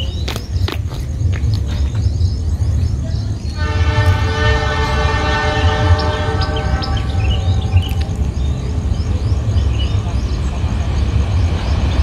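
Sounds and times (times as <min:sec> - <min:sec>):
low train rumble: 0:00.0 - 0:12.0
locomotive horn chord: 0:03.6 - 0:08.0.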